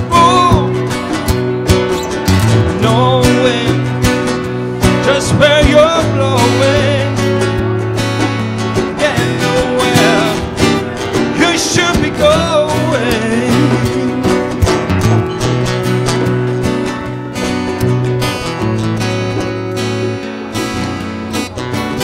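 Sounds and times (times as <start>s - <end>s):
man singing: 0.0s - 1.2s, 2.5s - 15.0s
acoustic guitars playing: 0.0s - 22.0s.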